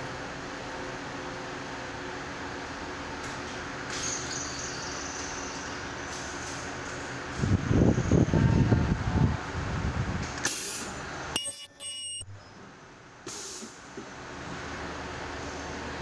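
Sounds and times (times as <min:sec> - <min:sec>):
high-pitched ultrasonic weld squeal: 0:11.4 - 0:12.5.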